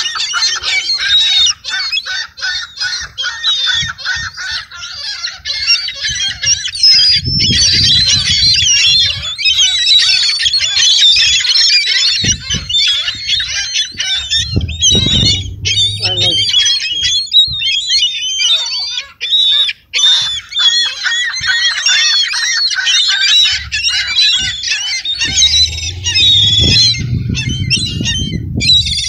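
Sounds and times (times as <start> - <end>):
gulls calling: 0.0 - 29.0
low thuds: 12.2 - 16.6, 23.6 - 29.0.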